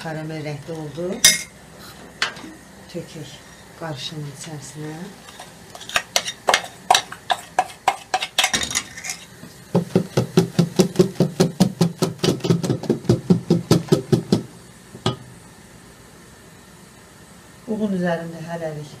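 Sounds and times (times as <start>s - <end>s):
whisk clacking against metal bowl: 5.8s - 8.6s.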